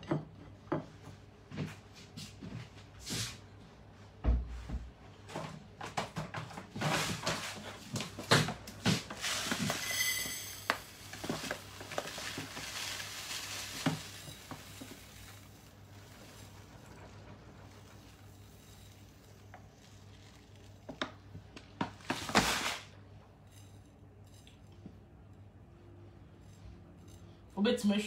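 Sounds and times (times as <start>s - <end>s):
pots and utensils clattering: 8.3s - 19.6s
high metallic ring: 9.6s - 11.1s.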